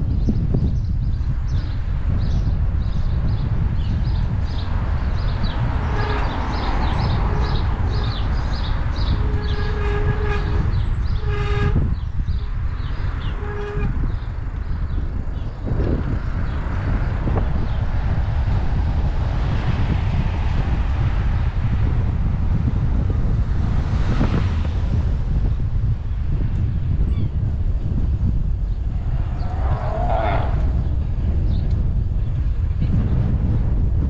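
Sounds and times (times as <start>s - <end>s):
wind buffeting microphone: 0.0s - 34.0s
horn-like tone: 5.8s - 8.3s, 9.0s - 12.1s, 13.2s - 14.2s.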